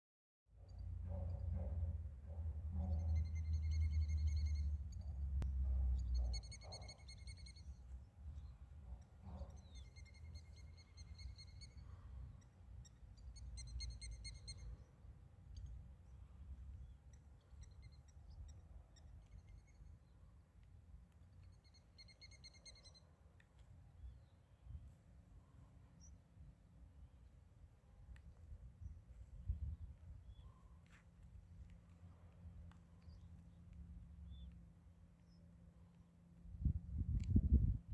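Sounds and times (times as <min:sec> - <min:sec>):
songbird trilling: 0:05.9 - 0:14.8, 0:21.4 - 0:23.1
wind buffeting microphone: 0:36.6 - 0:37.9.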